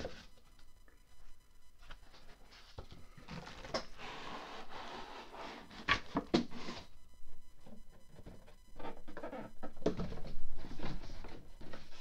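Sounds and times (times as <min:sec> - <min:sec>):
cardboard and foam rustling: 0:09.9 - 0:12.0.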